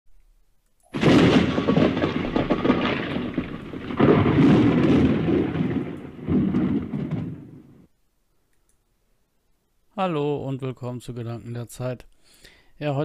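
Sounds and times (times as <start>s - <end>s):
thunder crash and rumble: 1.0s - 7.9s.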